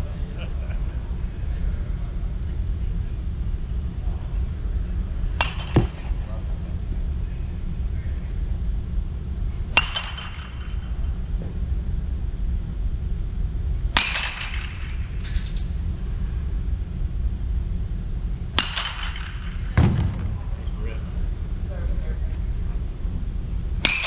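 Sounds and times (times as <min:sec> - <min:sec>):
baseball bat hitting balls: 0:05.3 - 0:06.4, 0:09.7 - 0:11.2, 0:13.9 - 0:15.7, 0:18.5 - 0:20.8, 0:23.8 - 0:24.0
low rumble: 0:14.6 - 0:23.9.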